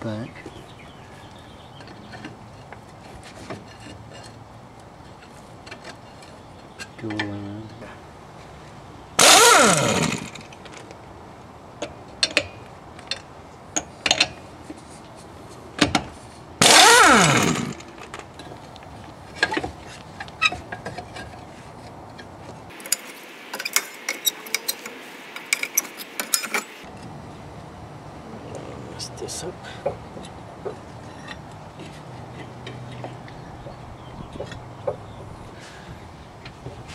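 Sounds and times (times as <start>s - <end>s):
impact wrench whine: 9.2s - 10.8s, 16.6s - 18.5s, 22.7s - 26.9s
spanner clinking on nuts: 22.1s - 26.9s.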